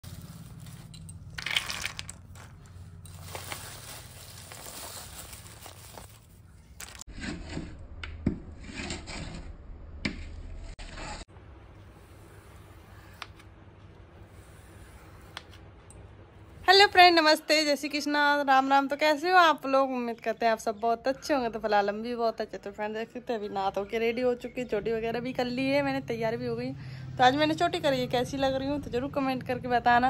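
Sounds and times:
plastic bag crinkling: 0.1 - 7.0.

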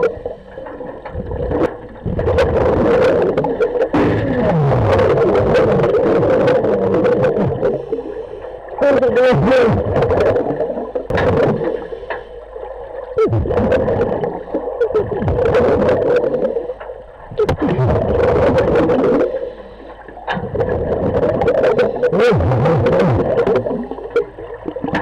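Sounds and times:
underwater regulator breathing bubbles: 13.2 - 25.0.

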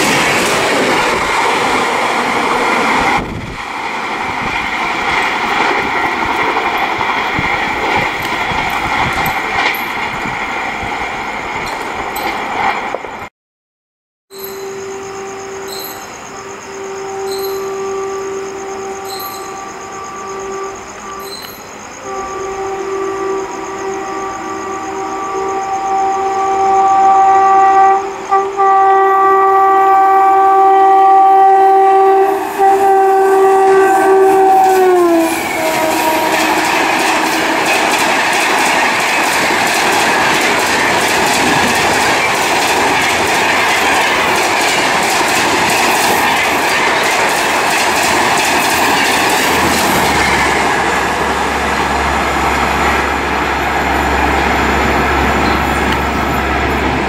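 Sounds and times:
train wheels roaring on rail: 0.0 - 13.3, 14.3 - 57.0
locomotive multi-tone horn: 14.5 - 39.1.

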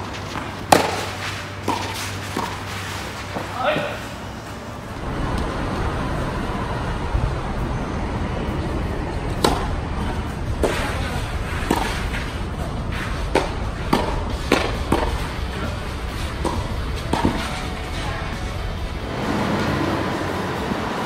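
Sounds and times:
tennis racket hitting ball: 0.0 - 4.0, 9.3 - 18.4
steady background noise: 0.0 - 21.0.

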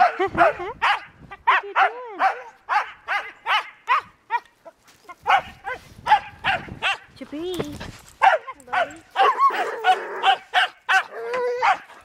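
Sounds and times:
husky barking: 0.0 - 7.1, 8.2 - 12.0
dog howling: 9.1 - 12.0.

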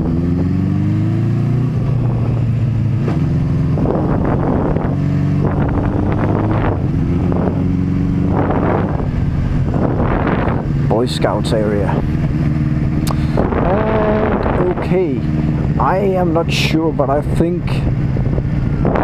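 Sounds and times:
motorcycle engine accelerating: 0.0 - 19.0
wind noise on microphone: 1.6 - 10.9, 11.8 - 16.0, 17.7 - 19.0.

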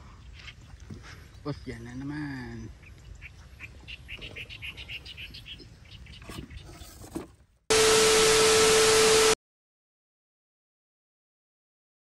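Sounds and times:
steady humming tone: 7.7 - 9.4
tv static hiss: 7.7 - 9.4.

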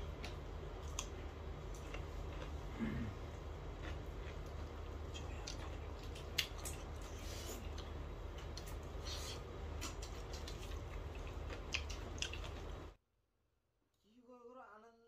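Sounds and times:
person chewing and lip smacking: 0.0 - 12.9
steady low hum: 0.0 - 13.0.

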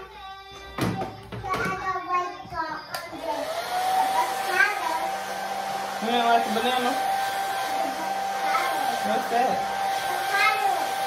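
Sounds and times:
hair dryer running: 2.9 - 11.0.

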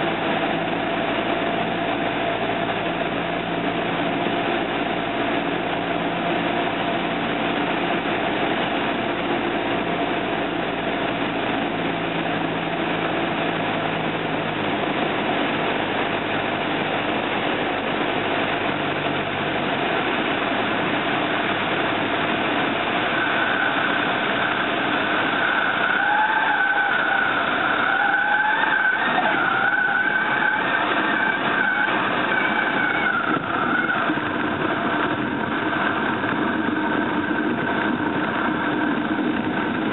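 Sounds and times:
propeller plane engine hum: 0.0 - 39.9
rushing air: 0.0 - 39.9
stall warning horn wailing: 23.0 - 35.5.

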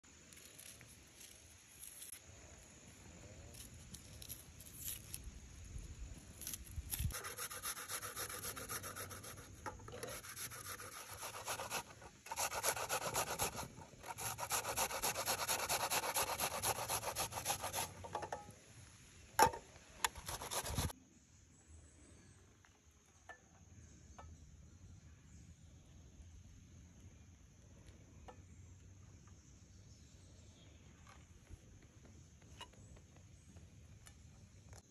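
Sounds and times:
onion grating on metal grater: 6.4 - 18.0, 20.0 - 20.9.

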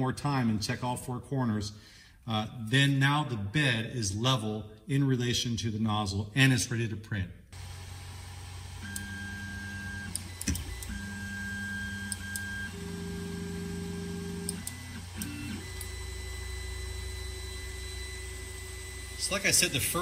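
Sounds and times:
stepper motors whining: 7.6 - 20.0.

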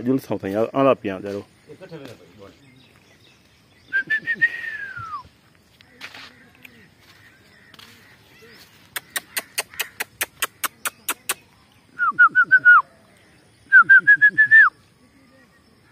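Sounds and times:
bird whistling call: 3.8 - 5.3, 8.9 - 12.9, 13.6 - 14.8
sharp clicks: 8.9 - 11.5.

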